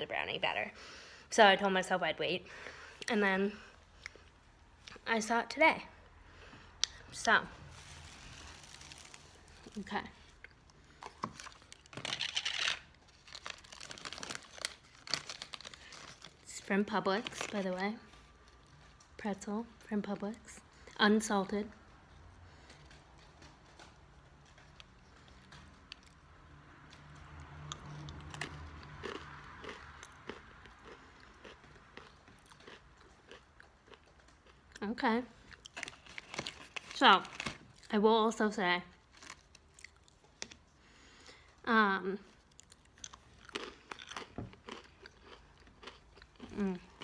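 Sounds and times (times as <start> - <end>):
paper bag crinkling: 7.6 - 9.9, 11.2 - 17.8, 35.7 - 37.8
pretzel crunching: 7.7 - 10.0, 11.0 - 16.5.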